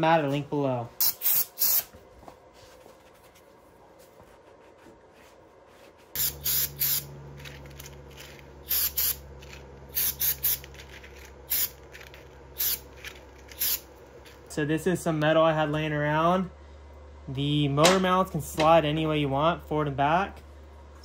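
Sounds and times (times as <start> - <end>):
steady low hum: 0.0 - 21.0
spray paint can hissing: 1.0 - 1.9, 6.2 - 7.1, 8.7 - 9.2, 9.9 - 10.7, 11.5 - 11.8, 12.6 - 12.9, 13.5 - 13.8.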